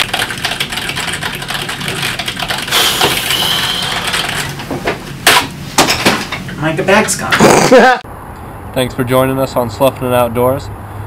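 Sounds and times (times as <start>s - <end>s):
fast typing on keyboard: 0.0s - 4.6s.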